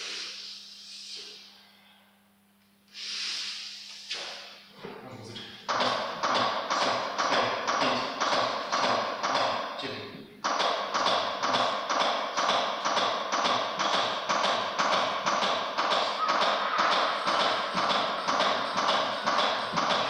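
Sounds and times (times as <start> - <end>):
steady tapping beat: 5.6 - 20.0.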